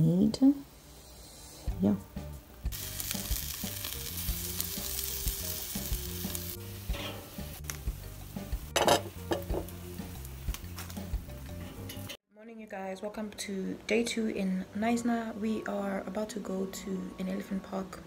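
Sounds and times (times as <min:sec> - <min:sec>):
sausage sizzling on a grill: 0:02.7 - 0:12.1.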